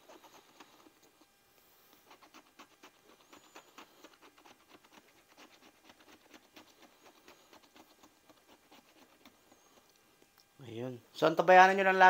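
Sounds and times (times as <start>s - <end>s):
lottery ticket being scratched: 2.0s - 9.8s.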